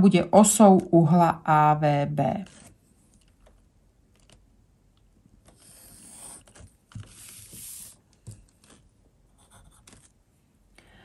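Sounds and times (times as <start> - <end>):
pencil scratching on paper: 5.5 - 8.0, 9.3 - 10.1.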